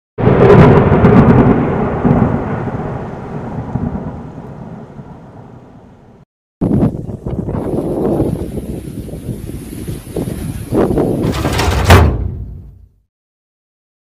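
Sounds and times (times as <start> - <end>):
deep thunder-like rumble: 0.2 - 12.8
crash with sharp cracks: 11.2 - 12.8.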